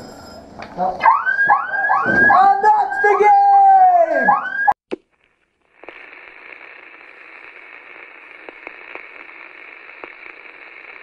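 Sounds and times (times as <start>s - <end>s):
static hiss: 4.9s - 11.0s.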